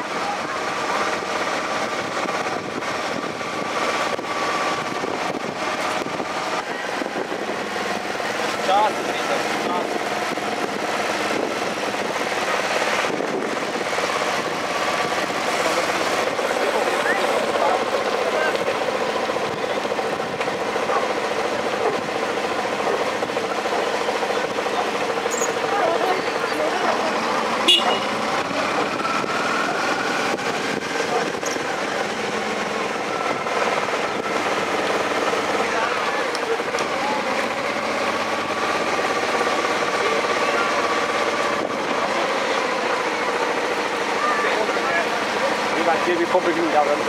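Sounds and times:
bicycle tyres rolling on road: 0.0s - 47.0s
wind on microphone: 1.8s - 8.2s, 9.7s - 15.4s.

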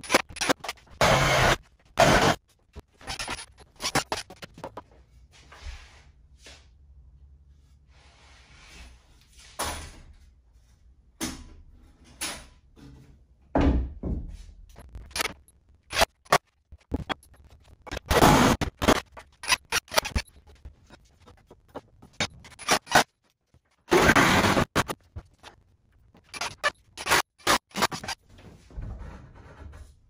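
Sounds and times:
soft wood scrapes: 7.5s - 9.6s
wooden knocks and thumps: 12.8s - 14.6s.

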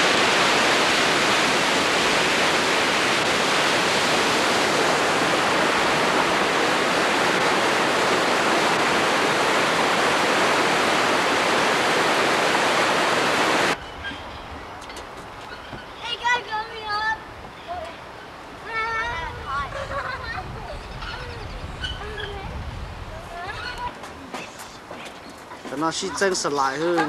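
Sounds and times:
loud steady rushing noise: 0.0s - 13.8s.

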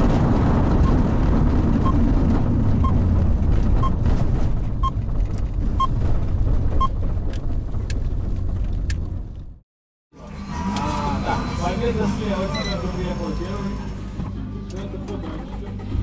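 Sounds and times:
car engine rumbling inside cabin: 0.0s - 9.6s
short electronic beep: 12.5s - 12.9s.

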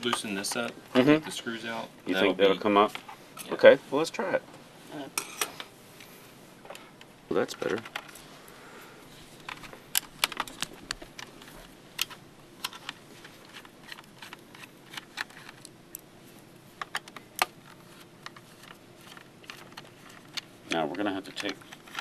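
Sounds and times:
plastic laptop parts clicking: 9.4s - 15.7s, 16.8s - 22.0s.

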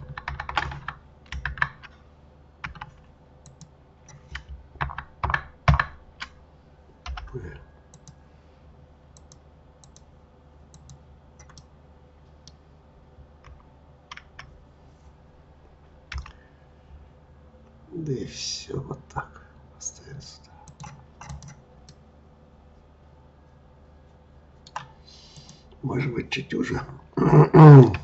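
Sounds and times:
computer keyboard and mouse clicks: 0.0s - 2.0s, 2.6s - 6.4s, 7.0s - 8.2s, 9.2s - 10.1s, 10.7s - 11.7s, 13.4s - 14.5s, 16.1s - 16.4s, 20.6s - 22.0s, 24.7s - 25.6s.

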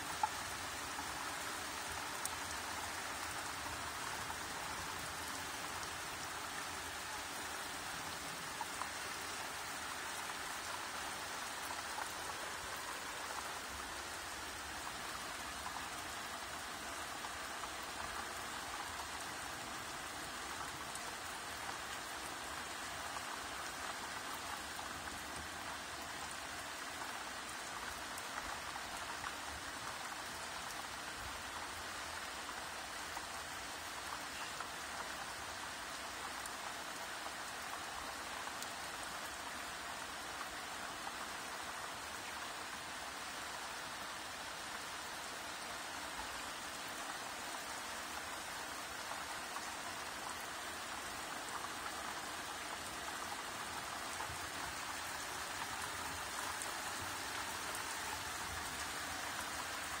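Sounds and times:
steady rain hiss: 0.0s - 60.0s.

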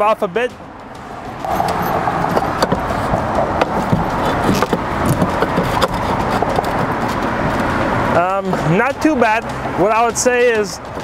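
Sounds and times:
road traffic hum: 0.0s - 11.0s.

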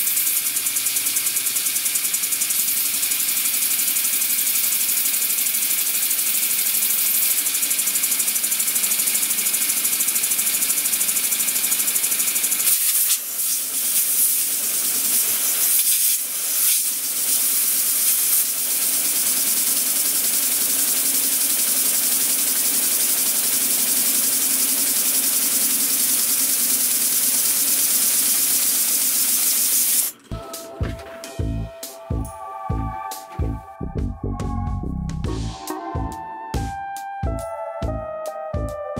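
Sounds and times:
model steam engine pulsing: 0.0s - 32.3s
compressed air hissing: 12.5s - 18.9s.

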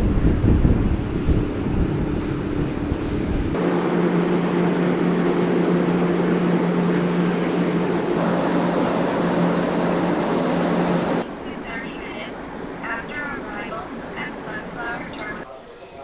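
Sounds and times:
wind buffeting microphone: 0.0s - 11.2s
rushing air and water: 0.0s - 15.2s
ship machinery hum: 0.0s - 15.5s.

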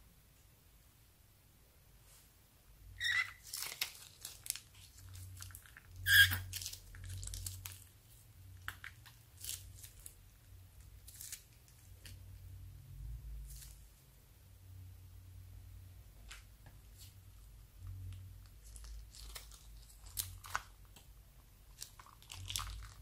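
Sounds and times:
plastic bag crinkling: 3.1s - 10.2s, 18.4s - 21.0s, 21.7s - 23.0s.

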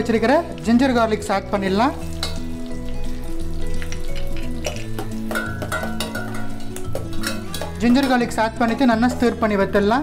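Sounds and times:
garlic sizzling in butter: 0.0s - 10.0s
soft background music: 0.0s - 10.0s
spoon stirring against pan: 2.0s - 9.5s.

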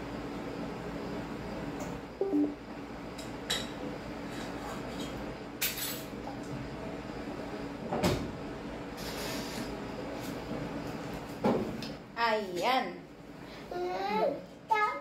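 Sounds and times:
background hum: 0.0s - 15.0s
falling two-note sound: 2.2s - 2.6s.

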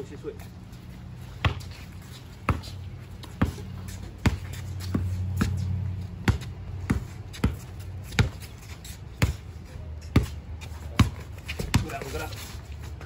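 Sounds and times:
basketball bouncing on concrete: 1.3s - 1.8s, 2.4s - 8.5s, 9.2s - 12.3s.

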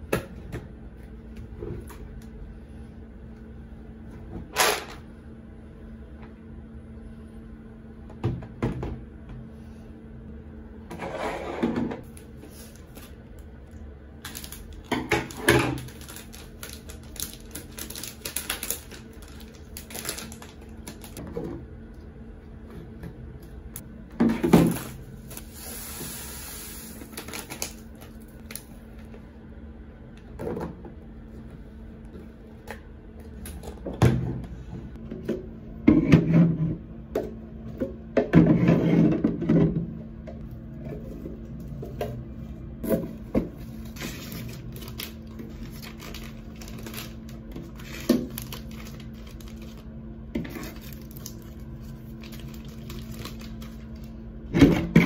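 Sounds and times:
faint steady hum: 0.0s - 55.0s
packet rustling: 14.2s - 21.2s, 43.9s - 49.9s, 50.6s - 54.1s.

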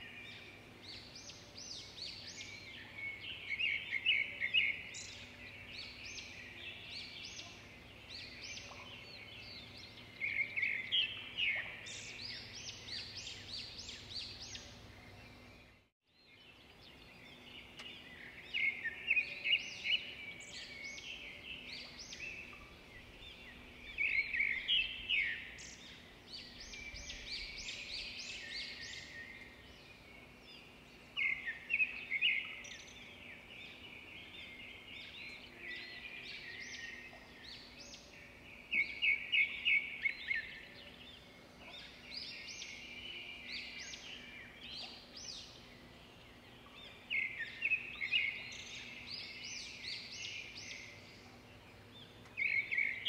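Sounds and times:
birds chirping: 0.0s - 53.0s.

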